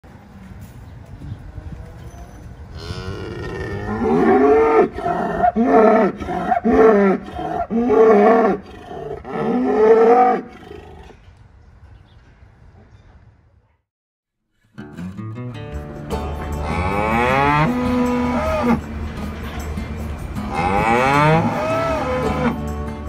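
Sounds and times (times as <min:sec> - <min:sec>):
cow mooing: 0:02.8 - 0:11.1, 0:16.6 - 0:18.9, 0:20.4 - 0:22.6.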